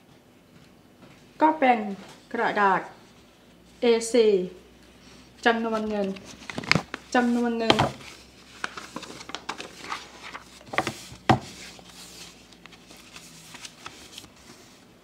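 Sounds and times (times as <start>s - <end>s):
paper rustling: 5.6s - 15.0s.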